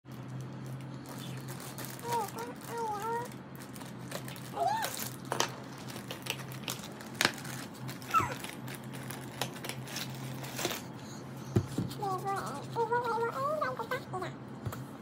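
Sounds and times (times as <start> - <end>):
plastic bag crinkling: 0.1 - 10.9.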